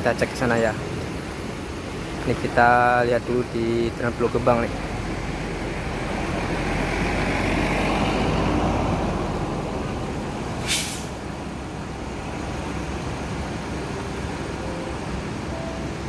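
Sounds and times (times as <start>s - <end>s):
bus engine idling: 0.0s - 16.0s
air brake hiss: 10.6s - 11.2s.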